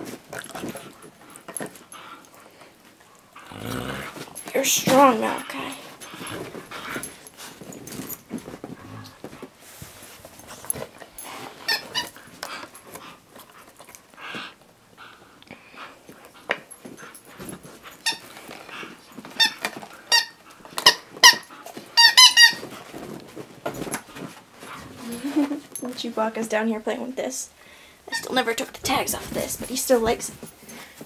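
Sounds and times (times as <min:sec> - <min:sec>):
dog chewing toy: 0:00.0 - 0:09.5, 0:10.2 - 0:25.0
squeaky toy squeaks: 0:11.6 - 0:12.2, 0:18.0 - 0:18.3, 0:19.4 - 0:22.7.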